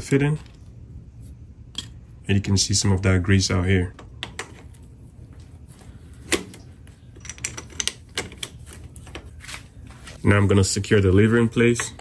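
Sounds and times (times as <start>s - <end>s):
small hard parts clicking and tapping: 6.3s - 9.3s.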